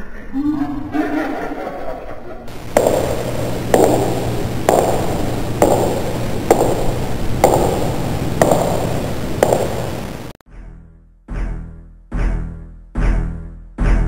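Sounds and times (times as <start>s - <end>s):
sharp metallic pings: 2.5s - 10.3s
steady low hum: 2.5s - 10.4s.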